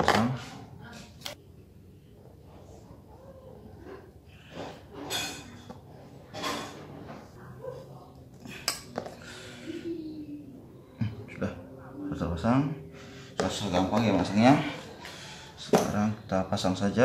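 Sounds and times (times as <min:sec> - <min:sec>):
soft breaths: 0:07.4 - 0:12.0, 0:14.4 - 0:16.3.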